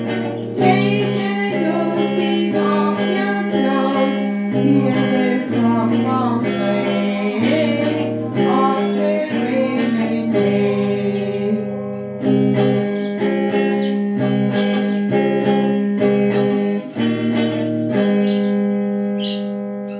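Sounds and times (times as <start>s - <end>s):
strummed electric guitar: 0.0s - 19.9s
woman singing: 0.1s - 11.8s.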